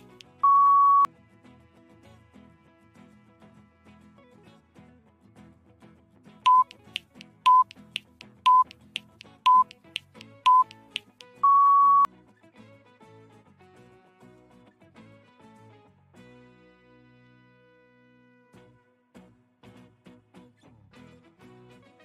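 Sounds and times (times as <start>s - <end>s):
longer higher beep: 0.0s - 1.1s, 6.5s - 6.8s, 7.5s - 7.7s, 8.5s - 8.7s, 9.5s - 9.7s, 10.5s - 10.7s, 11.4s - 12.1s
short electronic beeps: 0.0s - 1.1s, 6.5s - 7.7s, 8.5s - 8.8s, 9.4s - 12.1s
timer ticks: 0.0s - 1.1s, 6.5s - 12.1s.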